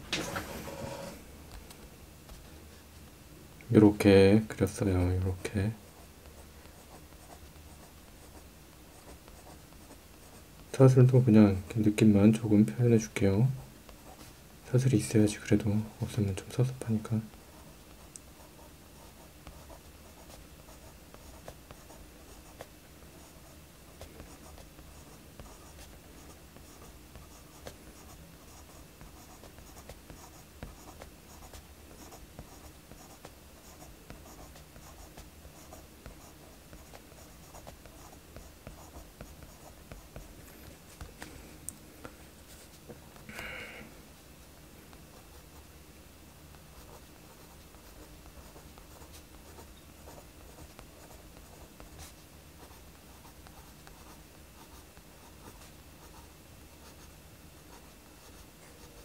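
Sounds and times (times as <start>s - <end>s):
pencil scratching on paper: 0.3s - 1.2s, 18.4s - 41.1s, 46.7s - 57.1s.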